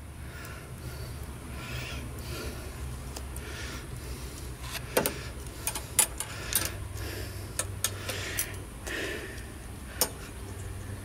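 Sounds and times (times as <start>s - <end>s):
pliers clicking on steel wire: 4.7s - 6.8s, 7.6s - 9.0s, 10.0s - 10.2s.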